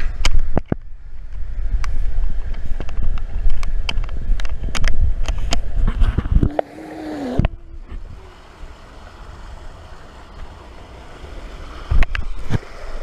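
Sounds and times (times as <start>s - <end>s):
muffled wash of water: 0.8s - 13.0s
held vocal note: 6.5s - 8.6s
water rushing down slide: 6.5s - 13.0s.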